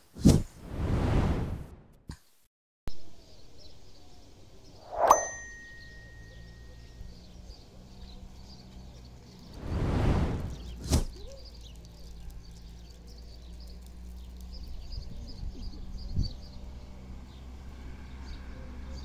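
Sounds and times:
small birds chirping: 0:03.1 - 0:19.0
low outdoor rumble: 0:05.4 - 0:19.0.

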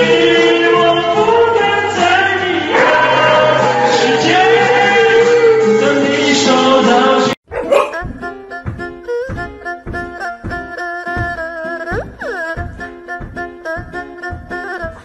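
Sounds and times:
karaoke backing track with bass: 0:00.0 - 0:07.4.

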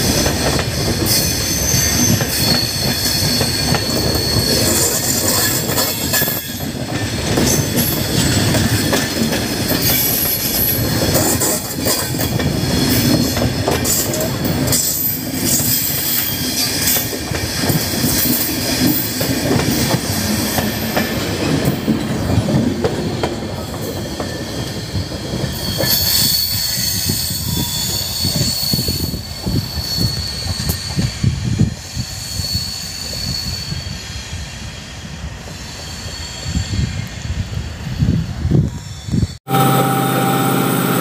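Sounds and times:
train wheels clattering over joints: 0:00.0 - 0:26.4
metallic wheel squealing: 0:01.1 - 0:09.1
thin high whine: 0:39.5 - 0:41.0.

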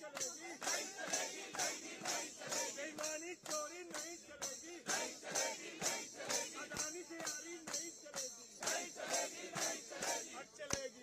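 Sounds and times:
jingling percussion beat: 0:00.0 - 0:11.0
voices singing together: 0:00.4 - 0:03.2, 0:04.4 - 0:07.3, 0:08.6 - 0:11.0.

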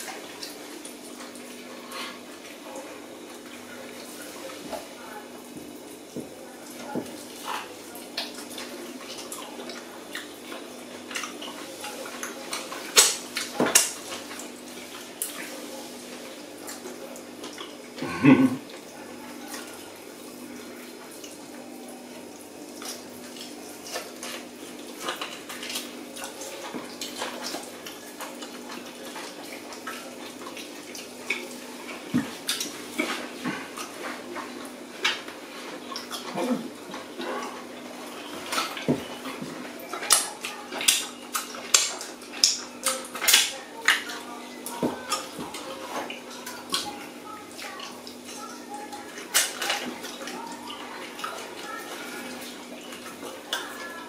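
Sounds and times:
wet eating mouth sounds: 0:17.6 - 0:18.7.

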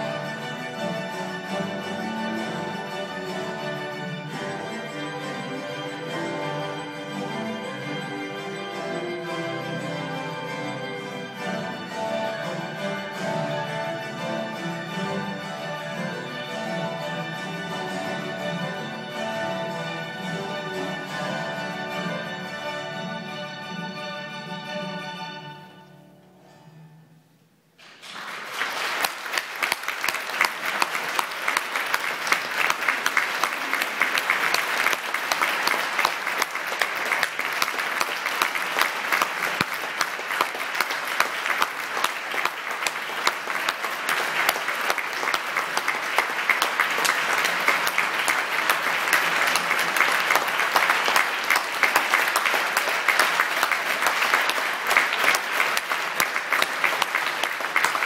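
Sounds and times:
music: 0:00.0 - 0:58.0
audience applauding: 0:27.8 - 0:58.0.

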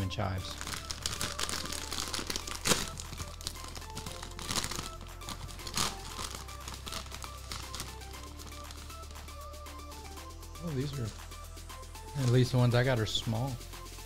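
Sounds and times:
background music: 0:00.0 - 0:14.0
plastic chip bag crinkling: 0:00.5 - 0:09.0.

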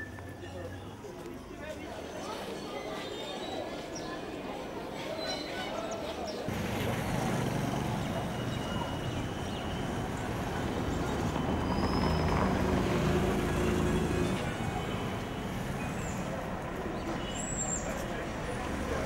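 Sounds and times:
street traffic noise: 0:00.0 - 0:19.0
vehicle engine passing: 0:06.5 - 0:16.8.

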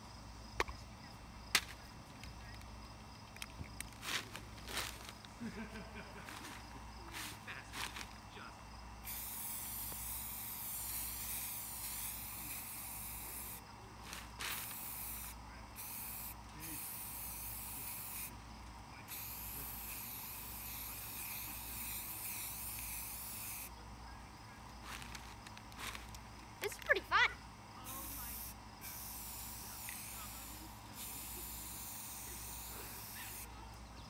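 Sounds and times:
spray paint can hissing: 0:09.0 - 0:18.4, 0:19.1 - 0:23.7, 0:27.8 - 0:33.5.

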